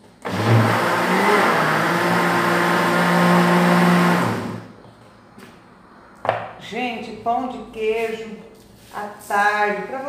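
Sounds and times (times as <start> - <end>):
blender motor running: 0.2 - 4.7.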